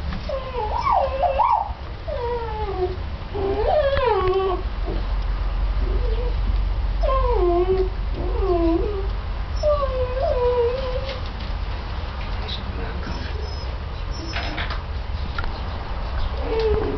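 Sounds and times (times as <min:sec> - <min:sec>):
puppies whining: 0:00.3 - 0:05.1, 0:05.8 - 0:06.4, 0:07.0 - 0:11.3, 0:13.0 - 0:14.7, 0:16.3 - 0:16.9.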